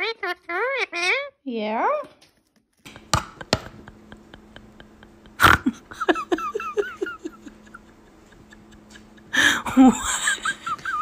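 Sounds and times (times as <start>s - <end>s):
faint steady hum: 2.9s - 11.0s.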